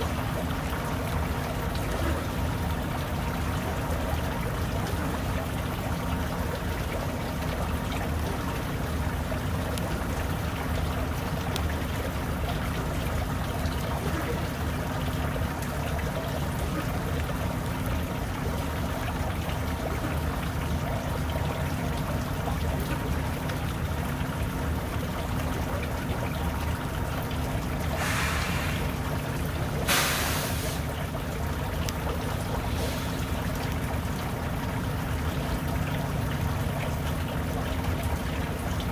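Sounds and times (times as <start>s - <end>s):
diesel truck engine idling: 27.8s - 35.2s
short air hisses: 28.0s - 29.0s, 29.9s - 30.9s.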